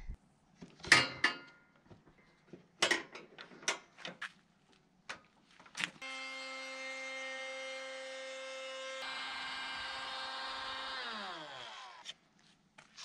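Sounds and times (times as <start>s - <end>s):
trim router whining: 6.0s - 12.1s.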